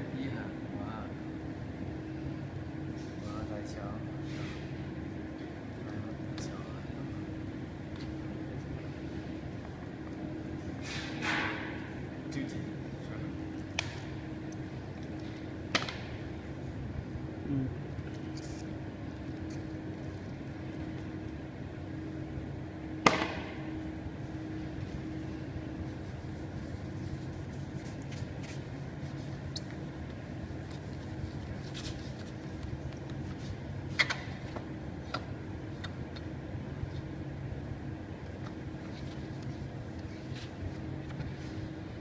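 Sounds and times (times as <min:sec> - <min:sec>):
low electrical hum: 0:00.0 - 0:42.0
sharp knock: 0:23.0 - 0:23.6
tissue wiping glass: 0:25.8 - 0:29.5.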